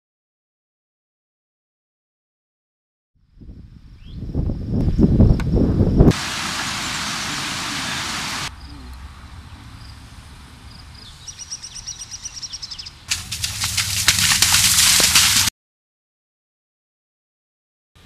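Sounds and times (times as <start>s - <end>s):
creek water rushing: 6.1s - 8.5s, 13.1s - 15.5s
loud rustling and crackling: 13.1s - 15.5s.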